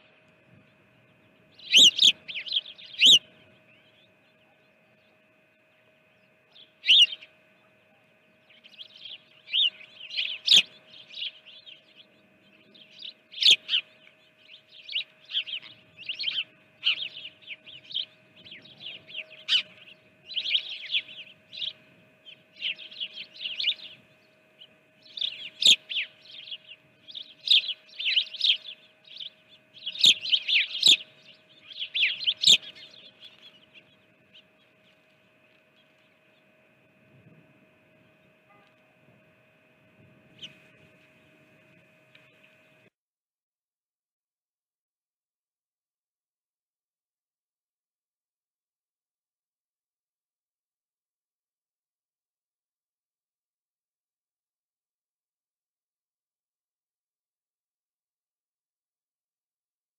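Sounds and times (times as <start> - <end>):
songbirds chirping: 0.0 - 42.9
faint steady hum: 0.0 - 43.0.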